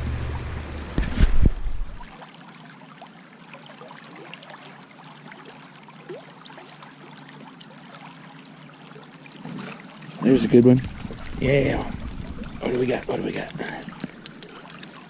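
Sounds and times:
low rumble: 0.0s - 2.1s, 10.7s - 13.3s
river water rushing over riffle: 10.1s - 15.0s.

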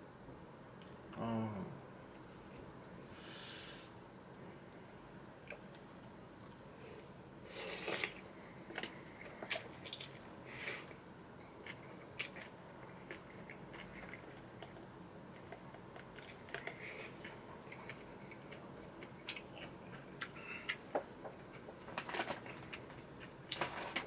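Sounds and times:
person chewing noodles: 7.5s - 21.7s.

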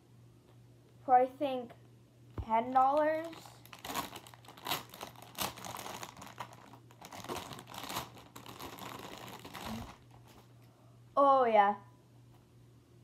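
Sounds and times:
plastic packaging crinkling: 2.6s - 10.5s.

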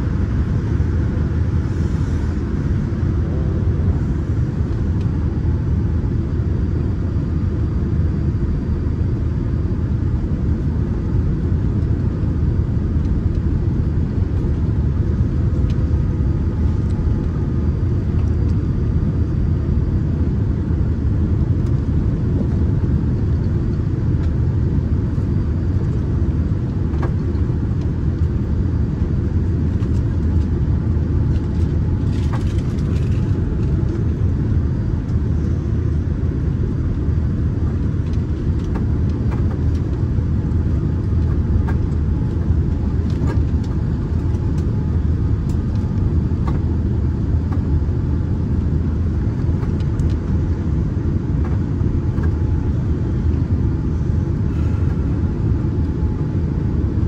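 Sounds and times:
airliner cabin engine rumble: 0.0s - 57.0s.

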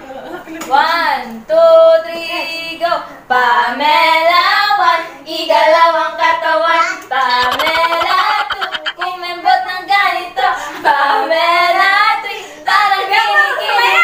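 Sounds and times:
women singing together: 2.9s - 14.0s.

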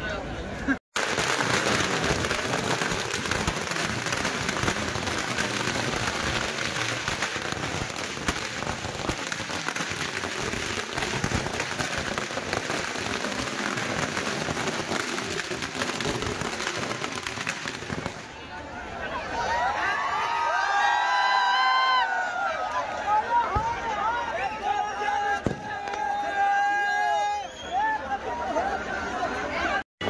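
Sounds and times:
firecrackers crackling: 1.0s - 18.5s, 25.4s - 26.3s.

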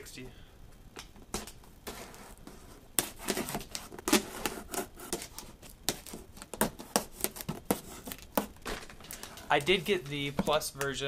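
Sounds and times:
knife cutting packing tape: 3.0s - 8.5s.

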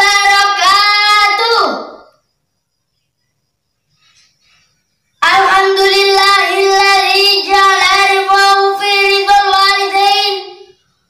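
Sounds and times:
boy chanting melodically: 0.0s - 2.1s, 5.2s - 10.8s.

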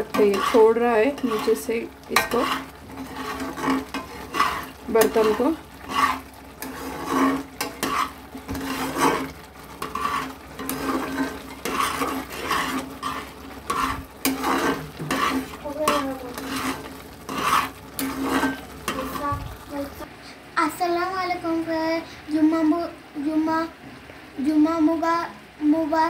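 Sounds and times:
metal spatula scraping pan: 0.0s - 19.4s.

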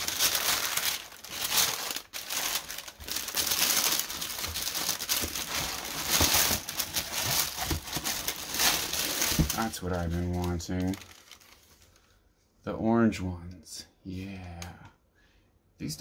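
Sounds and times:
tissue paper crinkling: 0.0s - 12.2s.

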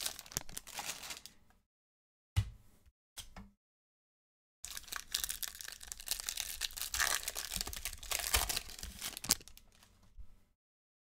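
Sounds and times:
wrapper tearing and crinkling: 0.0s - 1.3s, 4.7s - 9.9s.

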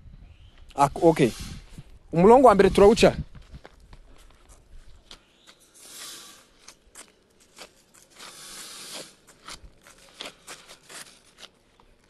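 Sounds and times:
footsteps: 2.6s - 11.6s.

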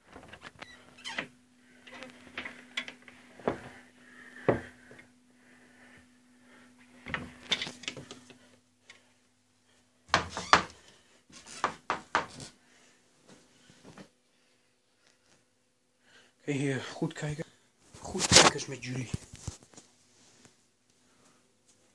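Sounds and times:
clothes rustling: 1.6s - 5.0s, 17.8s - 21.9s.

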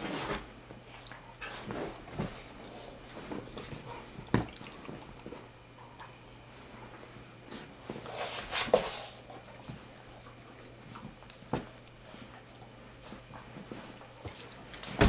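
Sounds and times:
dogs scuffling on fabric bed: 1.4s - 5.5s.

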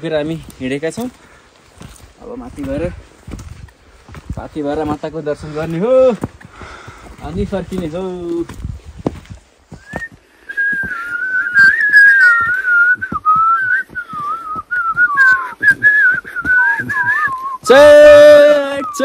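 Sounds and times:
faint footsteps: 0.0s - 19.0s
person whistling a tune: 9.8s - 17.7s, 18.6s - 19.0s.

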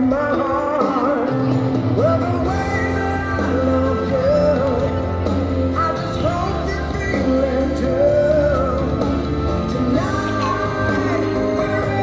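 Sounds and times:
pop song over loudspeakers: 0.0s - 12.0s.

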